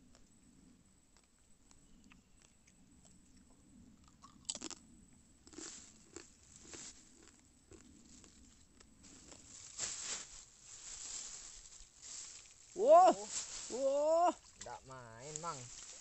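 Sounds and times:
crackling handling noise: 0:06.5 - 0:13.7.

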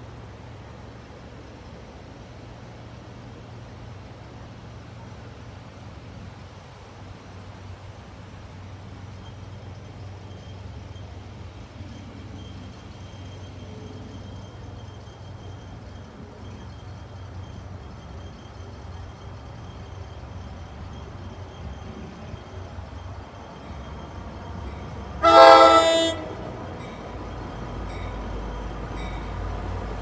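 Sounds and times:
faint high tone: 0:25.2 - 0:26.4.

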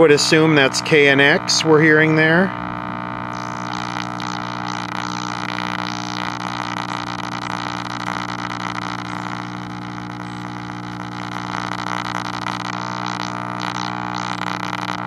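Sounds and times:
faint radio station audio: 0:00.0 - 0:02.7
radio power supply hum: 0:00.0 - 0:15.0.

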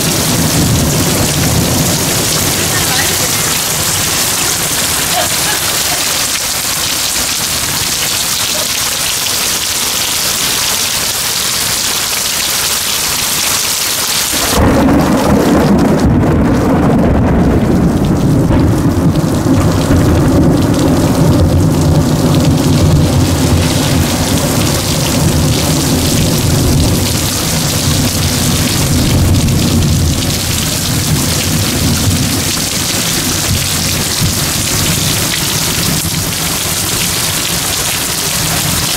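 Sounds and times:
thunder rumbling: 0:00.0 - 0:08.5, 0:14.3 - 0:38.9
heavy rain pouring: 0:00.0 - 0:38.9.

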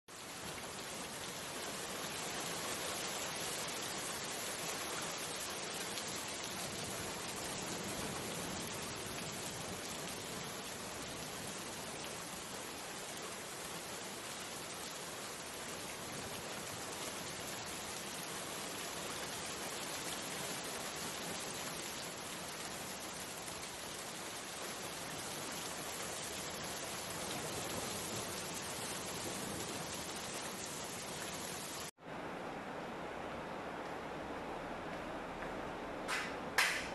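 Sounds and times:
rain falling on puddles: 0:00.1 - 0:32.0.

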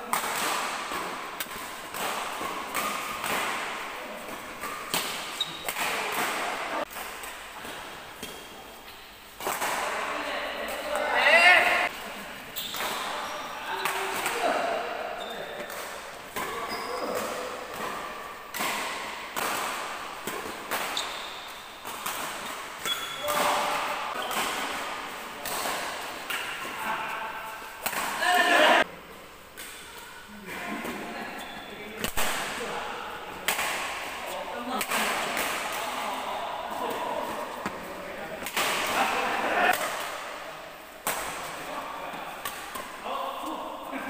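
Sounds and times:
rackets hitting shuttlecock: 0:00.0 - 0:11.9, 0:15.6 - 0:28.8, 0:33.4 - 0:43.1.

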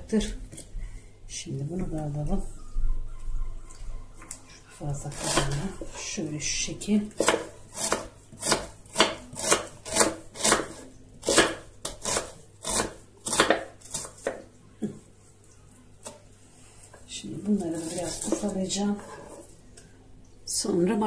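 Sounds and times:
knife slicing onion on wooden board: 0:07.1 - 0:14.4.

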